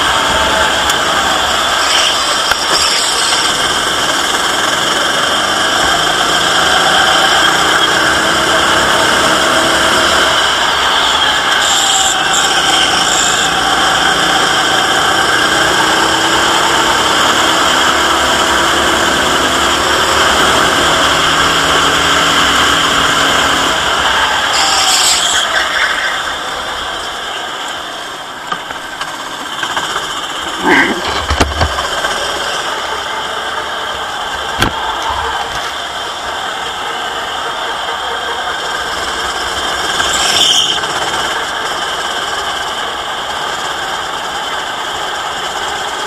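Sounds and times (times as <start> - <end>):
go-kart engine: 0.0 - 46.0
tyre squeal: 0.4 - 3.9, 10.0 - 15.0, 22.2 - 27.5, 39.8 - 41.2.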